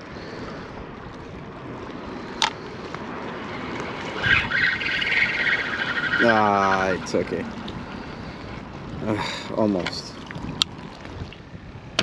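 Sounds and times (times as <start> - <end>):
wind on microphone: 0.0 - 12.0
spinning reel whirring: 3.4 - 8.7.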